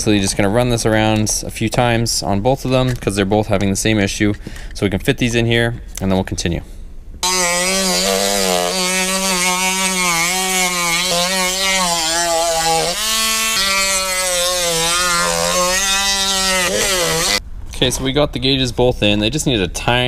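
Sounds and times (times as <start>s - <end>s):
rotary tool sanding whine: 7.2s - 17.4s.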